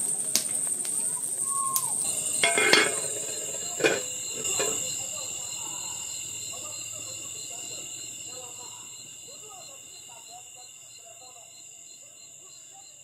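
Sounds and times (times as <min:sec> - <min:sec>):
crickets and night insects chirping: 0:00.0 - 0:13.0.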